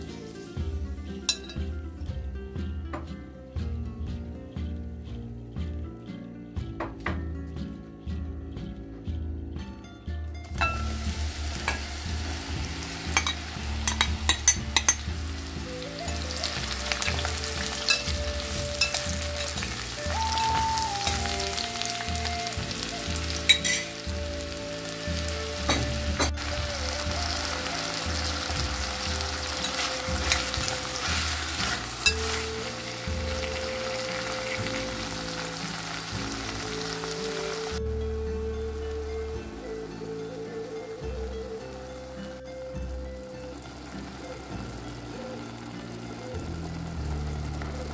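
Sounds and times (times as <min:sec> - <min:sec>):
mushrooms sizzling in oil: 0:00.0 - 0:02.2, 0:10.6 - 0:40.8, 0:43.2 - 0:47.9
metal spoon scraping glass: 0:23.5 - 0:23.9.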